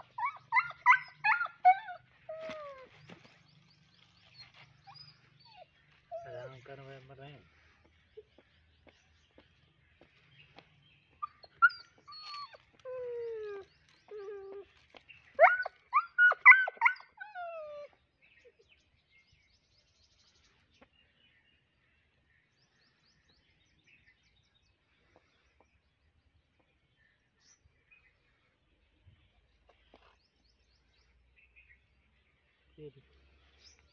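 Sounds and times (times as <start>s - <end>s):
dog yelping: 0.0s - 2.9s, 15.4s - 17.9s
dog whining: 0.1s - 3.0s, 4.8s - 6.5s, 11.2s - 14.7s.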